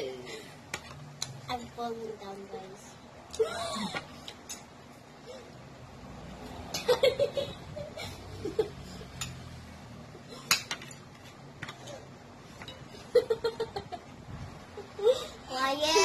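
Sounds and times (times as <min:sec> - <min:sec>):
girl giggling: 0:03.3 - 0:04.2, 0:06.8 - 0:08.8, 0:14.8 - 0:16.0
metal spoons clinking glass bowls: 0:09.1 - 0:09.5.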